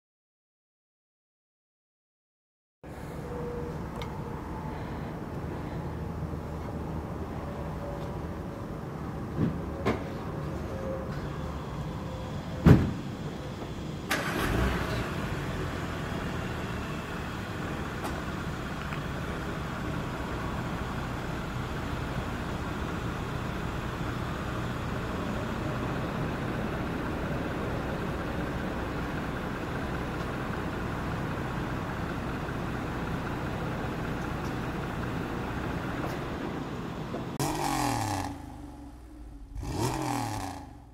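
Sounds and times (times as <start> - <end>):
car engine starting and idling: 11.3 - 40.9.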